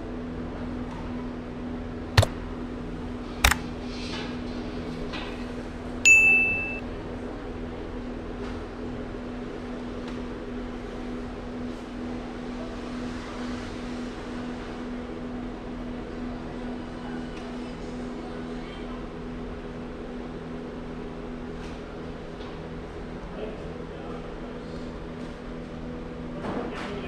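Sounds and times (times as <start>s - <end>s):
sharp clicks: 3.4s - 3.6s
high electronic beep: 6.1s - 6.8s.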